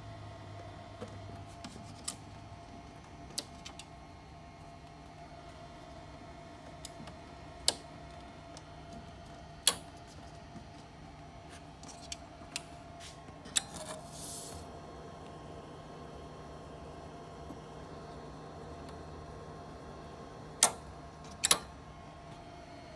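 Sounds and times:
faint tape deck hum: 0:00.0 - 0:22.9
brief hiss: 0:14.0 - 0:14.7.

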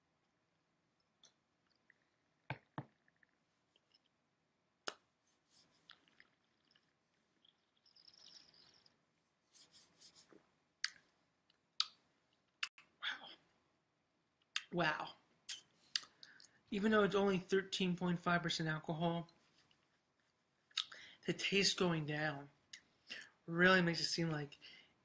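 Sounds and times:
sipping and swishing wine: 0:05.3 - 0:10.4.

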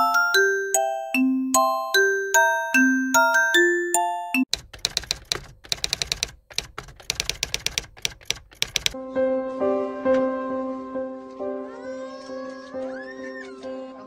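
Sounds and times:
background music with held notes: 0:00.0 - 0:04.4, 0:09.0 - 0:14.0
keyboard typing clicks: 0:04.3 - 0:09.0.

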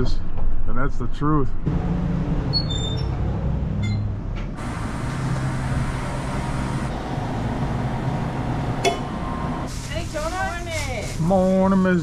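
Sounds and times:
vehicle engine hum inside cab: 0:01.6 - 0:09.7
road noise: 0:01.6 - 0:11.2.

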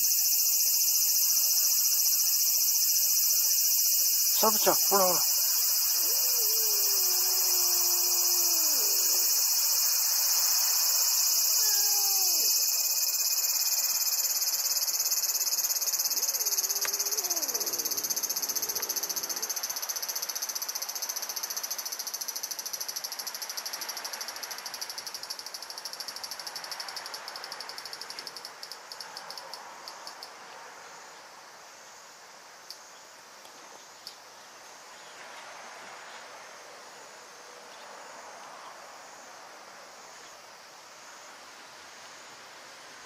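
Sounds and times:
insects trilling: 0:00.0 - 0:30.3.

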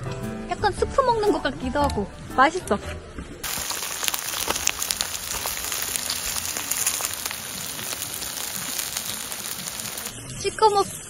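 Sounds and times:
meat sizzling on a grill: 0:03.4 - 0:10.3.

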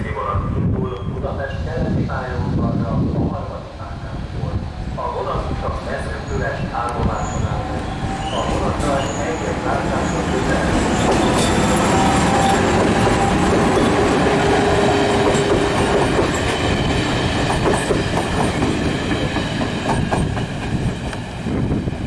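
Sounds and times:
train wheels clacking: 0:06.8 - 0:21.4.

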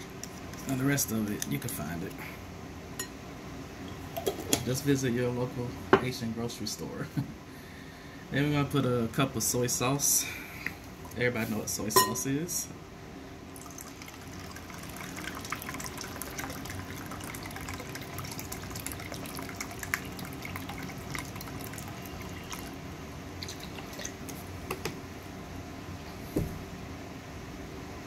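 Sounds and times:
liquid pouring and trickling: 0:13.5 - 0:24.4
small drips and ticks: 0:13.6 - 0:22.8, 0:23.4 - 0:24.4.

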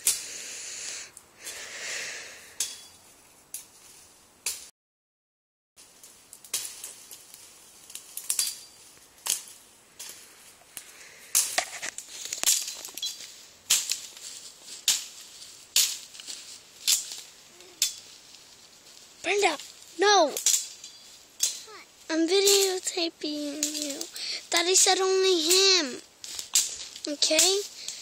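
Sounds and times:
hacking branches with cutting tool: 0:05.8 - 0:18.3, 0:19.2 - 0:28.0.

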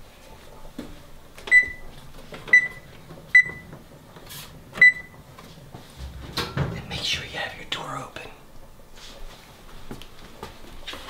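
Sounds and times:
oven control panel beeps: 0:01.5 - 0:01.9, 0:02.5 - 0:03.7, 0:04.8 - 0:05.2.

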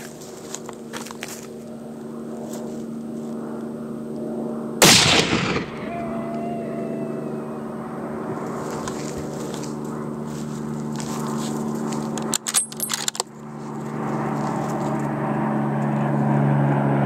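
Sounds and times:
rifle shot: 0:04.8 - 0:06.0.

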